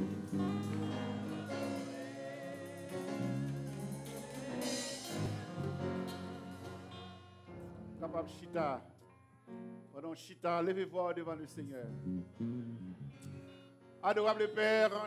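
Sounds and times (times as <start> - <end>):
congregation singing a hymn: 0.0 - 7.8.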